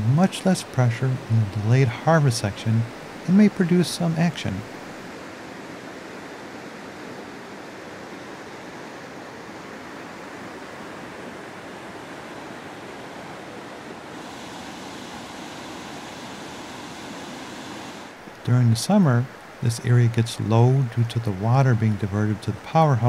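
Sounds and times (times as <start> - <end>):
whitewater river rushing: 9.8 - 19.6
cascading waterfall: 12.1 - 19.6.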